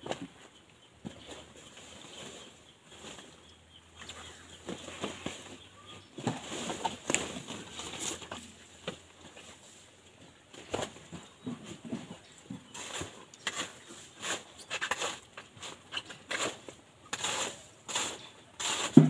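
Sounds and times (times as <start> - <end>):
leaves rustling: 4.0 - 10.1.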